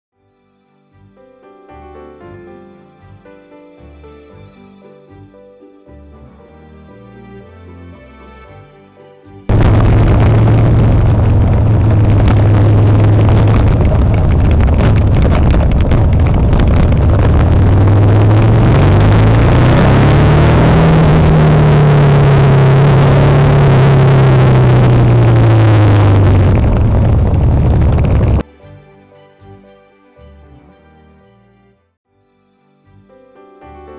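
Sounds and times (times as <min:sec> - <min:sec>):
motorcycle engine running: 0:09.5 - 0:28.4
wind rush: 0:09.5 - 0:28.4.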